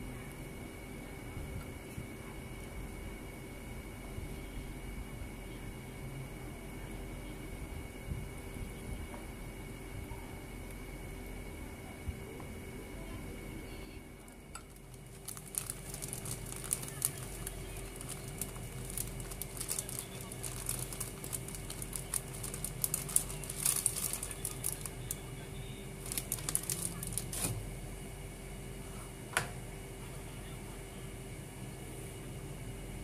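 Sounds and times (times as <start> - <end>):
faint steady hum: 0.0 - 33.0
plastic bag crinkling: 14.6 - 25.3, 25.9 - 27.6.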